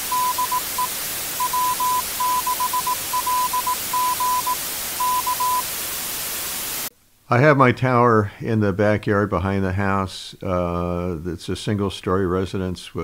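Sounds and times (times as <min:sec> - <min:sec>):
morse code tone: 0:00.0 - 0:05.7
constant hiss: 0:00.0 - 0:13.0.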